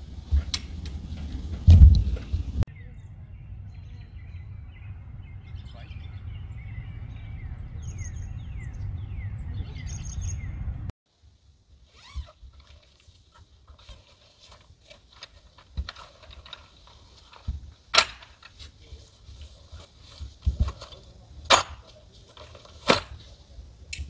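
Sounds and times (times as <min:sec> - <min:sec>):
wind rumble on microphone: 0:00.0 - 0:10.9
small birds chirping: 0:02.2 - 0:10.8
fabric rustling: 0:11.9 - 0:17.9.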